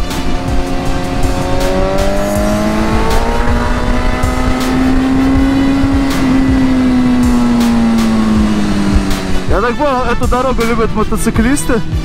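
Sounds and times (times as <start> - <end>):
wind rumble on microphone: 0.0 - 9.5
motorcycle engine revving: 0.0 - 12.0.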